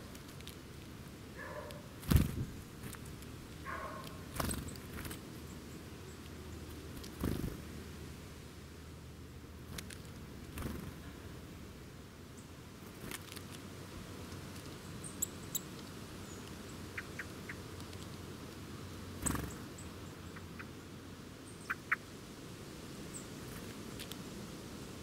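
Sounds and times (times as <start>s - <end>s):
birds chirping: 1.4s - 7.6s, 14.8s - 18.2s, 19.2s - 22.1s
bird wings flurry: 2.0s - 3.1s, 4.3s - 5.2s, 6.9s - 7.6s.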